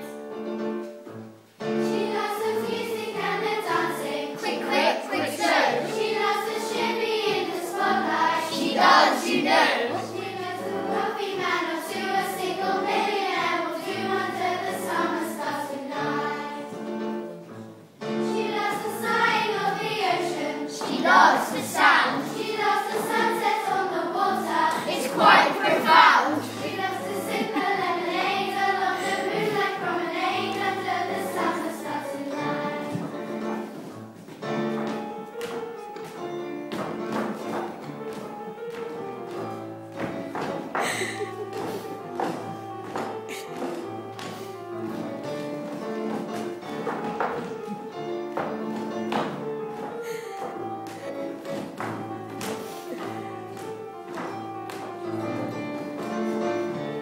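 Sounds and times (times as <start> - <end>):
children singing together: 1.6 - 17.3, 18.0 - 33.8, 40.5 - 49.3.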